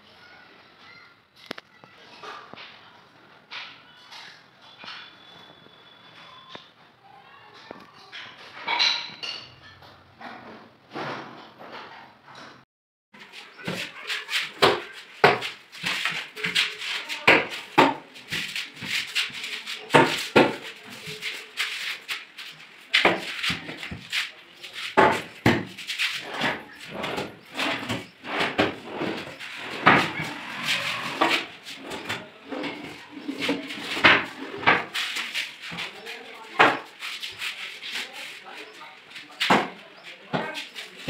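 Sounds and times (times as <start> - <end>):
cabinet doors knocking and clacking: 25.0 - 30.4.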